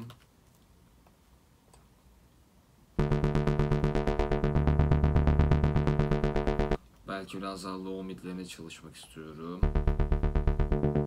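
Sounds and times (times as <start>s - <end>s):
overdriven synth bass line: 3.0s - 6.8s, 9.6s - 11.0s.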